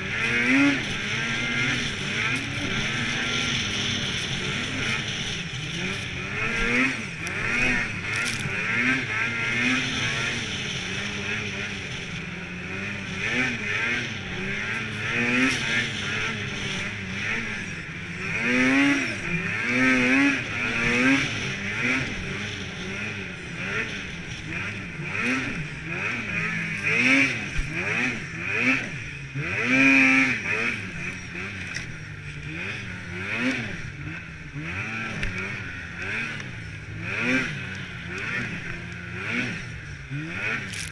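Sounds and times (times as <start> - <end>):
snowmobile engine revving: 0.0 - 40.9
steady rushing noise: 0.0 - 40.9.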